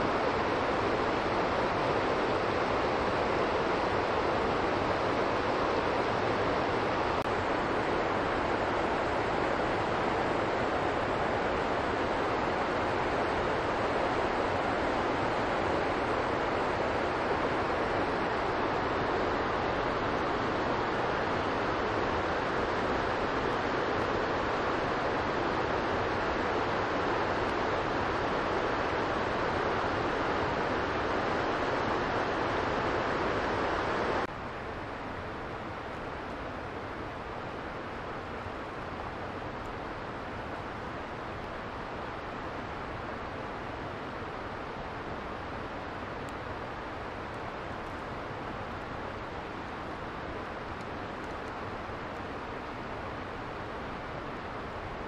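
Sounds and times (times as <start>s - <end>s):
mountain river rushing: 0.0s - 55.0s
outdoor background hiss: 0.0s - 55.0s.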